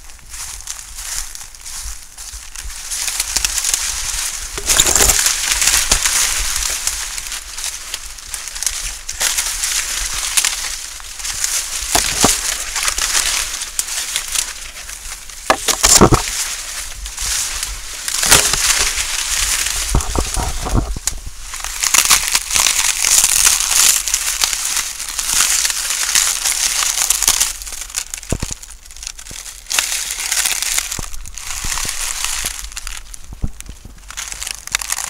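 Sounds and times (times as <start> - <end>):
dry corn leaves rustling: 0.0 - 35.0
sharp snaps of stalks: 2.6 - 35.0.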